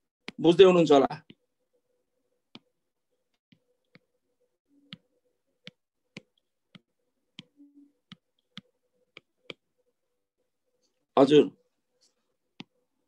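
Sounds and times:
stylus tapping on glass screen: 0:04.8 - 0:09.7.

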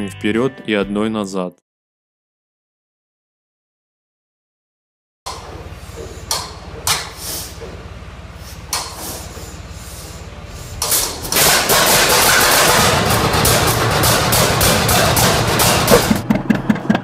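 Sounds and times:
tractor engine popping: 0:05.3 - 0:09.6, 0:10.8 - 0:17.0
sharp metallic knocks: 0:10.8 - 0:17.0.

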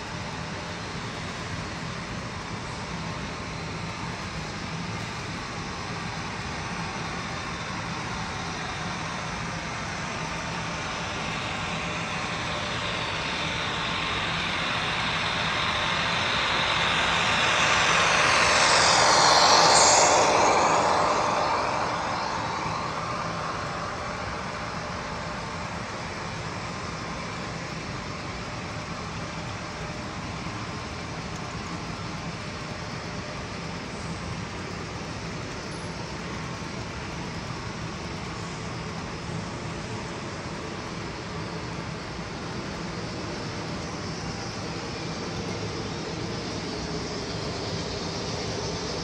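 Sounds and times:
low hum: 0:07.7 - 0:28.2.

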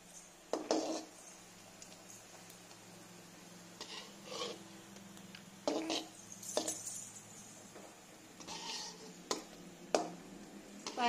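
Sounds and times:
spoon scraping metal pan: 0:00.5 - 0:01.2, 0:03.8 - 0:04.7, 0:05.6 - 0:06.9, 0:08.4 - 0:10.1
metal spoon clinking on pan: 0:05.7 - 0:07.2.

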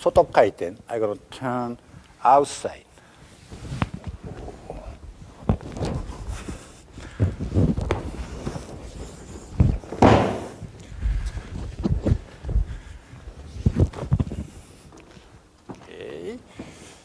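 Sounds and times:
bodies thumping on a mat: 0:07.1 - 0:09.0, 0:09.6 - 0:10.7.

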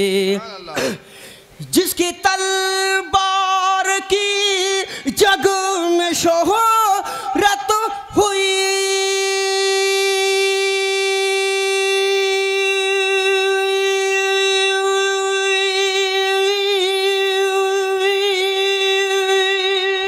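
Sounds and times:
person singing long note: 0:08.4 - 0:20.0.

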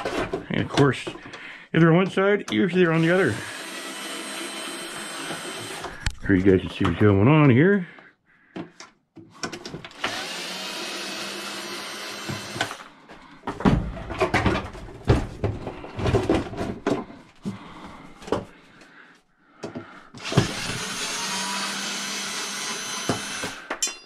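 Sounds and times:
knocks and clatter of handling: 0:00.0 - 0:01.4, 0:12.6 - 0:18.6
cordless drill running: 0:03.0 - 0:06.0, 0:09.9 - 0:12.9, 0:20.2 - 0:23.7.

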